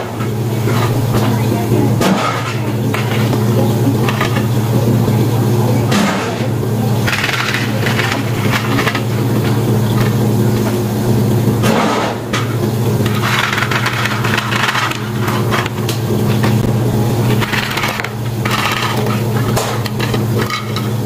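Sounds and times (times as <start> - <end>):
ice cubes rattling and crunching: 7.0 - 9.2, 13.1 - 16.0, 17.3 - 21.0.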